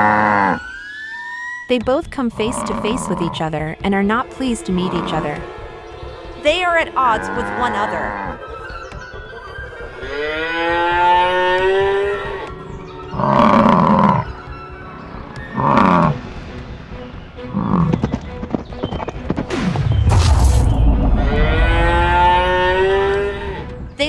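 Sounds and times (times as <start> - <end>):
cartoon cow moo: 0.0 - 0.7
harsh bison bellows: 2.3 - 3.4, 7.0 - 8.4, 13.1 - 14.3.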